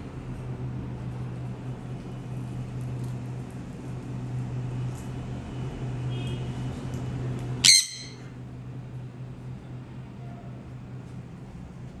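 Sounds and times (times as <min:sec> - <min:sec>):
parrot squawk: 0:07.6 - 0:08.3.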